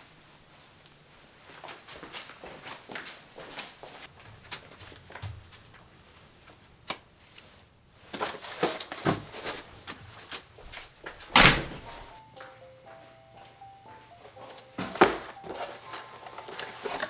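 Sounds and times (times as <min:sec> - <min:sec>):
knocks and footsteps: 0:01.5 - 0:07.2, 0:08.1 - 0:17.0
front door slamming: 0:11.3 - 0:12.1
simple melody of held notes: 0:11.9 - 0:17.0.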